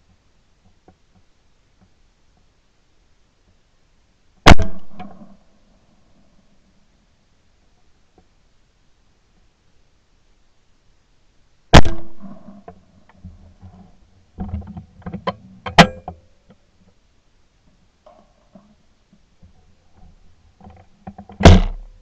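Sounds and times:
shotgun shots: 4.4 - 5.3, 11.7 - 12.6, 21.4 - 21.8
sharp crack: 4.4 - 5.4, 11.7 - 12.8, 21.4 - 22.0.

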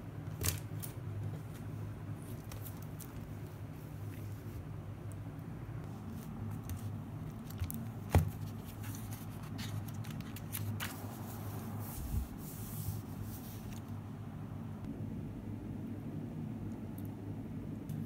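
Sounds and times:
paper rustling: 5.9 - 14.0.

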